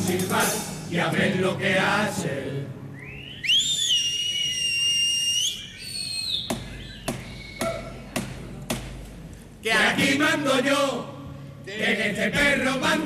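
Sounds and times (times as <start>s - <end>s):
loud gliding whistle: 2.9s - 7.8s
short high whistle: 2.9s - 7.9s.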